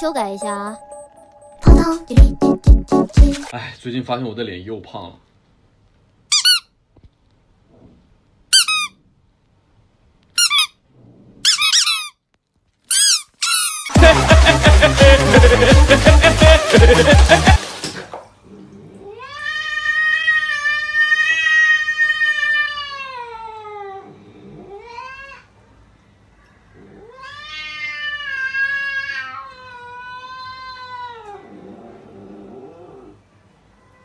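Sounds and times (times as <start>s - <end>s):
cat yowling: 19.0s - 25.5s, 27.0s - 31.5s.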